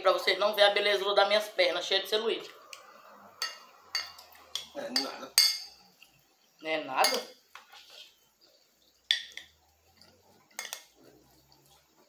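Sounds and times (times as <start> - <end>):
metal spoon clinking on plate: 3.4 - 5.8, 9.1 - 9.6, 10.5 - 11.0.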